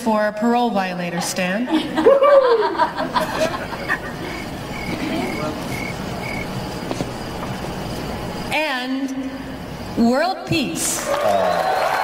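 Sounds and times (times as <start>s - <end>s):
crickets chirping: 1.8s - 10.7s.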